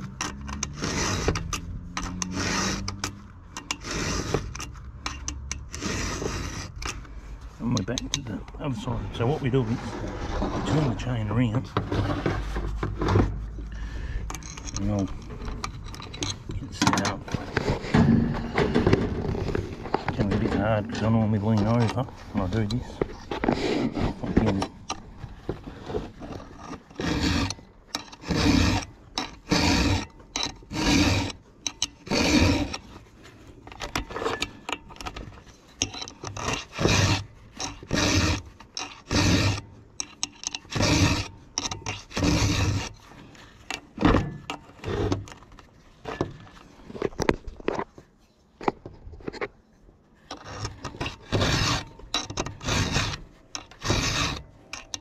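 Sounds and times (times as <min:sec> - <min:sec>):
file rasping on chainsaw chain: 0:00.1 - 0:07.0, 0:20.2 - 0:22.9, 0:26.2 - 0:33.0, 0:35.8 - 0:43.1, 0:50.3 - 0:55.0.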